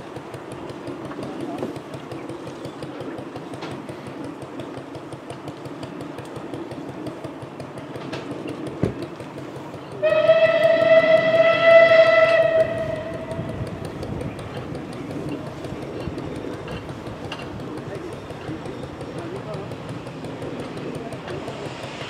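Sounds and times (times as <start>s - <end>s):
low steady rumble: 9.0s - 22.0s
steam locomotive whistle: 10.0s - 13.6s.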